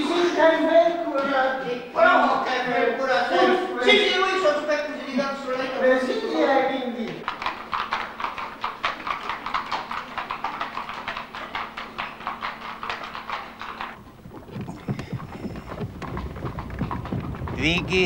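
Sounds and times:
horse hooves clip-clopping: 7.2s - 18.0s
low rumble: 14.0s - 18.0s.

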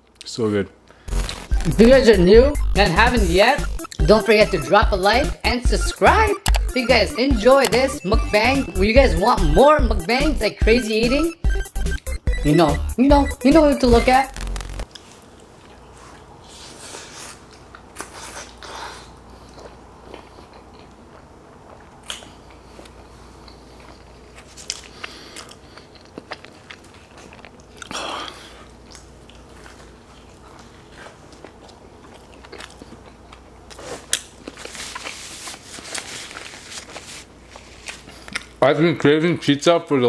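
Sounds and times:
crunchy chewing: 14.4s - 38.6s.

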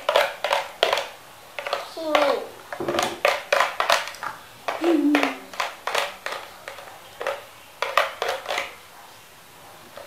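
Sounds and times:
plastic toys clattering on table: 0.0s - 8.8s.

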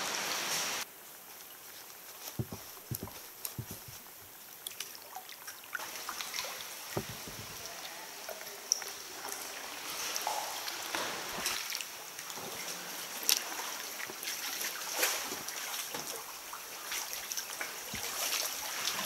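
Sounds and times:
water dripping and trickling: 0.2s - 19.0s
small water splashes: 2.2s - 19.0s
soft knocks: 2.4s - 4.1s, 7.0s - 7.6s.

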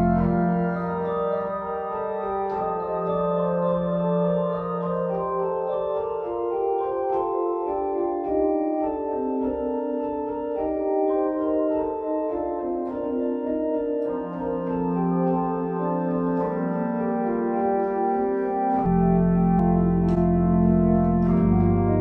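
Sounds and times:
held low organ note: 0.0s - 5.5s, 14.0s - 22.0s
organ playing chorale: 0.0s - 22.0s.

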